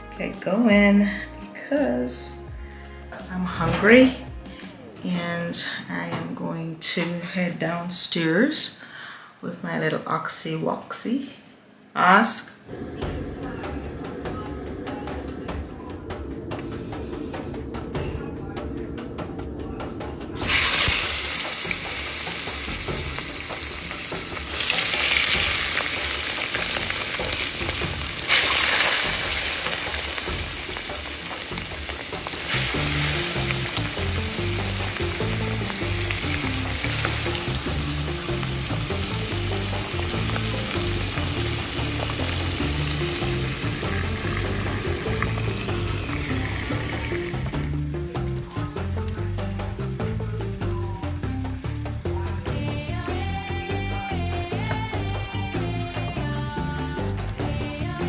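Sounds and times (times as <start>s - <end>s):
food sizzling in a pan: 20.4s - 52.1s.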